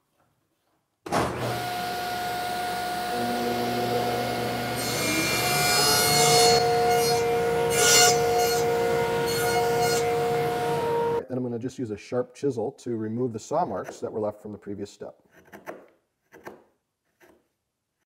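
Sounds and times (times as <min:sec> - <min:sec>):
table saw running: 0:01.2 - 0:11.2
saw cutting wood: 0:01.3 - 0:11.2.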